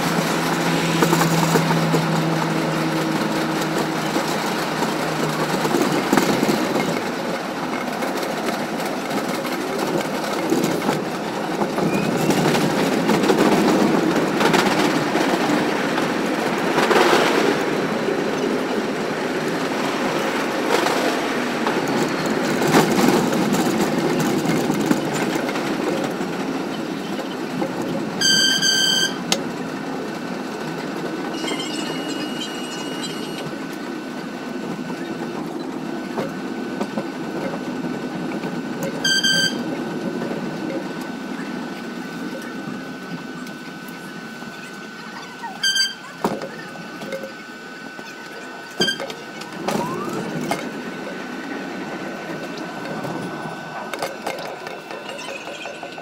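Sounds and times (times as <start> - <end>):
clacks over rail joints: 0.0 - 17.7
subway train rolling on rails: 0.0 - 56.0
high-pitched tone: 48.8 - 50.7.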